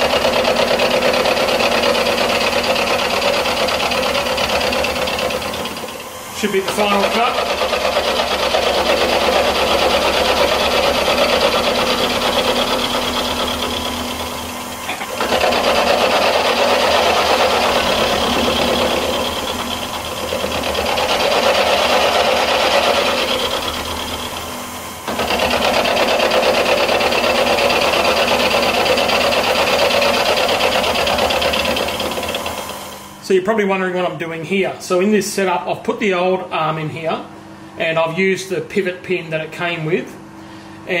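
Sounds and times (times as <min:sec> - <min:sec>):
milling machine cutting metal: 0:00.0 - 0:33.2.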